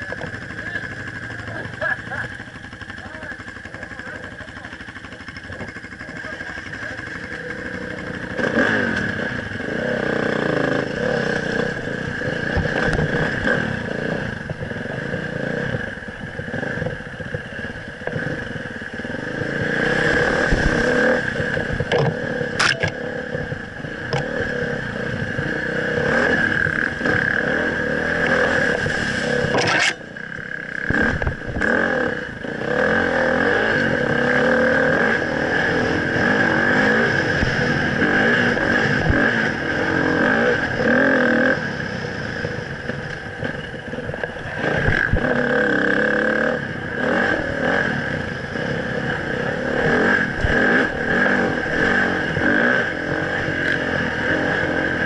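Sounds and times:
dirt bike engine revving: 0.0s - 55.0s
sharp scrapes: 28.5s - 30.0s.

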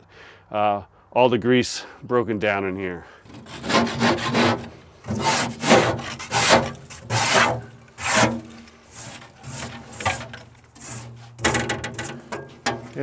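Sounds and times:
wire brush scrubbing steel: 3.3s - 13.0s.

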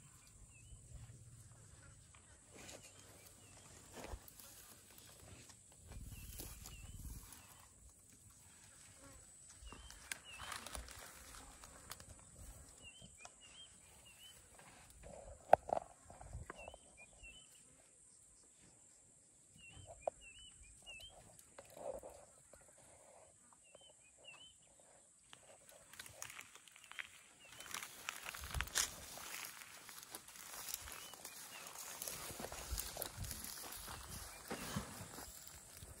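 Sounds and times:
small birds chirping: 5.9s - 7.9s, 9.0s - 18.7s, 19.5s - 36.0s.

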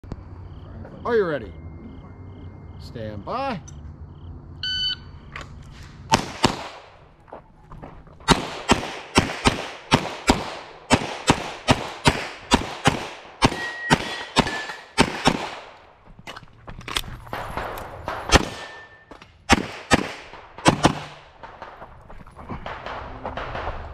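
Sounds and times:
shot timer beep: 4.6s - 5.2s
pistol shots: 6.1s - 7.1s, 8.2s - 15.8s, 17.3s - 21.8s, 22.6s - 23.9s.

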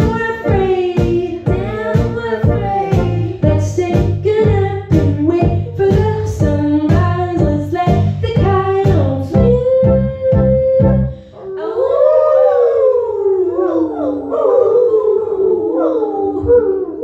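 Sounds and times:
steady beat: 0.0s - 11.0s
electric bass: 0.0s - 11.2s
women singing together: 0.0s - 17.0s.

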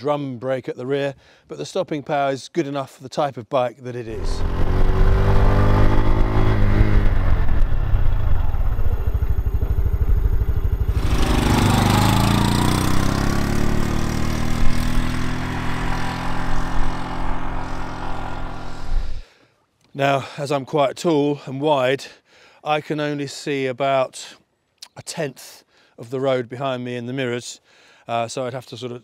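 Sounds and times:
motorcycle engine running: 4.2s - 19.2s.

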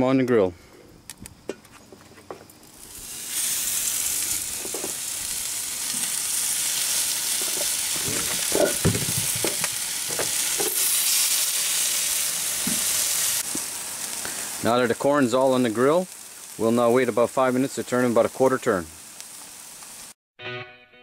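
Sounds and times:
corn sizzling on a grill: 0.7s - 20.2s
dull knocks on grill grate: 4.6s - 5.0s, 7.4s - 10.8s, 12.6s - 12.9s.

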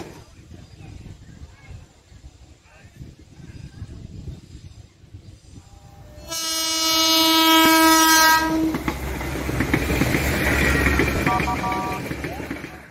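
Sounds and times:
rail car rumbling past: 3.2s - 12.9s
train horn blast: 6.1s - 8.9s, 11.3s - 12.0s
wheels clattering over rail joints: 8.4s - 12.9s.

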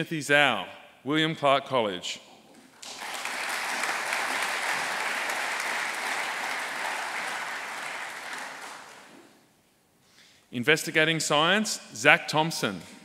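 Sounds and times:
audience applauding: 2.8s - 9.3s.

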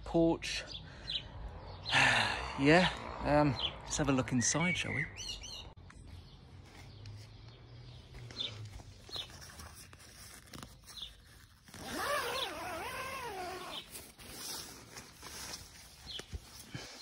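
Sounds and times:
tent door zipper: 10.4s - 15.3s.

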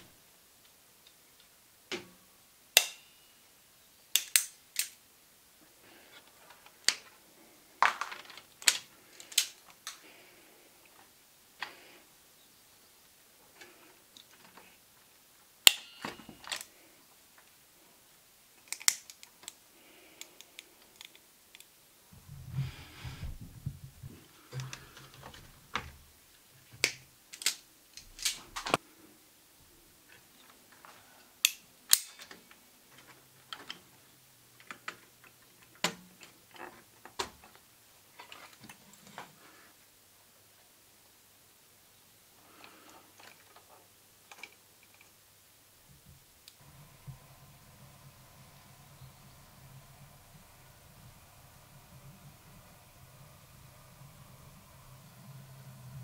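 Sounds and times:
crimping tool clicks and snaps: 2.8s - 3.2s, 4.1s - 5.0s, 8.6s - 10.0s, 15.7s - 16.7s, 18.6s - 19.6s, 20.2s - 21.7s, 26.8s - 28.8s, 31.4s - 32.5s
low knocks and handling noise: 22.2s - 26.0s.

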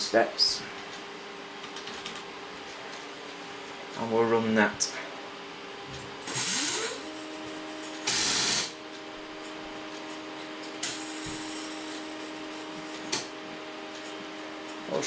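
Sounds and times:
printer stepper motor whine: 6.2s - 15.0s.

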